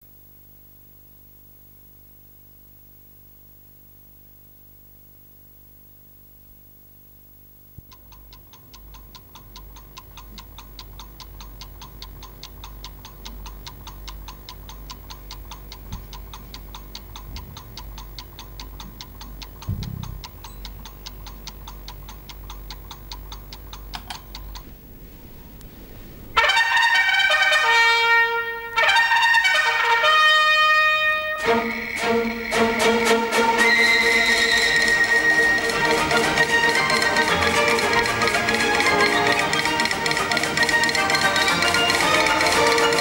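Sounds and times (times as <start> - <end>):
faint steady hum: 0.0 - 43.0
mechanical clock ticking: 7.8 - 24.7, 34.4 - 43.0
low rumble: 15.8 - 21.3, 24.4 - 26.4.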